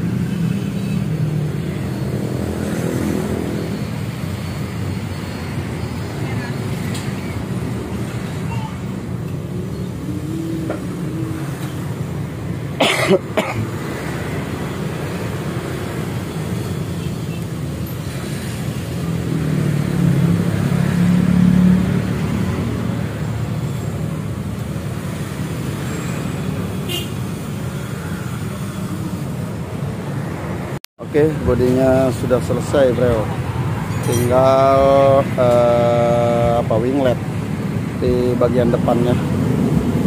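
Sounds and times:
road traffic rumble: 0:00.0 - 0:40.0
vehicle passing: 0:01.3 - 0:12.8, 0:18.1 - 0:29.2.

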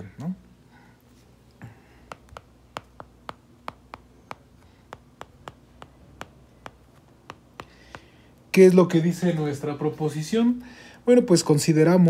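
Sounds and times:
faint low hum: 0:00.0 - 0:12.0
stylus tapping on tablet screen: 0:01.8 - 0:08.2.

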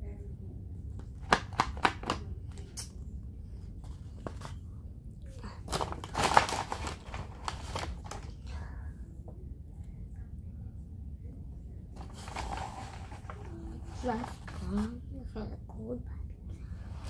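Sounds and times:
paper packaging crinkling: 0:05.7 - 0:08.4, 0:12.0 - 0:14.9.

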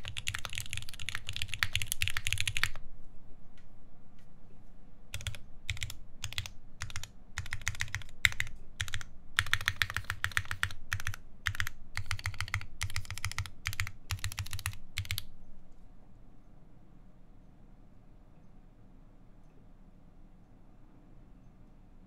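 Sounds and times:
mechanical keyboard typing: 0:00.0 - 0:02.8, 0:05.1 - 0:15.3.

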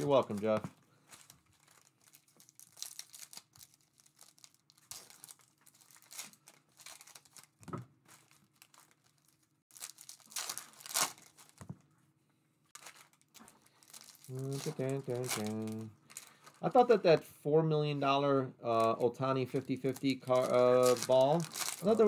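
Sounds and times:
foil wrappers tearing and crinkling: 0:00.0 - 0:11.6, 0:12.7 - 0:16.9, 0:18.8 - 0:22.0
cards shuffling: 0:12.8 - 0:15.9.

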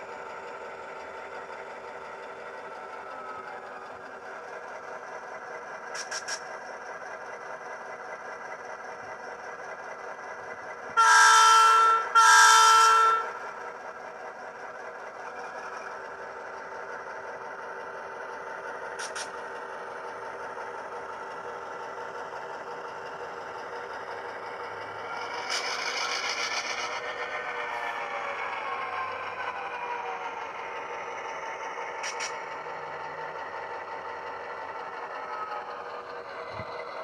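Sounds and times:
diesel locomotive engine hum: 0:00.0 - 0:37.0
locomotive horn blasts: 0:11.0 - 0:13.4.

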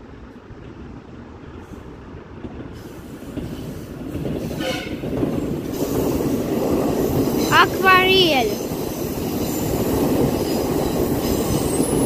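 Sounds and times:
metro train rumble: 0:00.0 - 0:12.0
train wheel squeal: 0:02.8 - 0:07.6, 0:08.5 - 0:12.0.

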